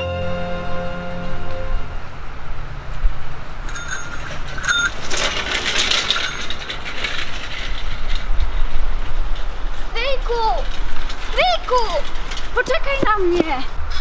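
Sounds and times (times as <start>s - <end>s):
bicycle rattling on gravel: 3.6s - 13.8s
bicycle bell ringing: 3.7s - 5.2s.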